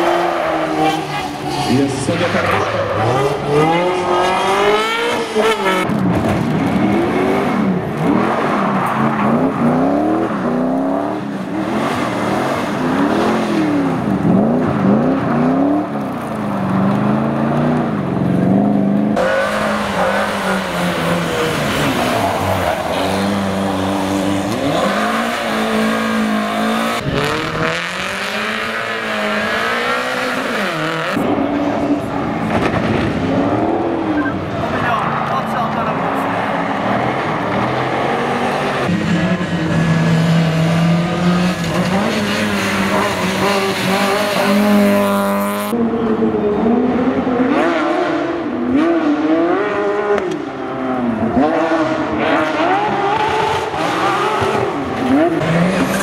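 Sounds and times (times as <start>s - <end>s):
sports car engine revving: 0.0s - 34.7s.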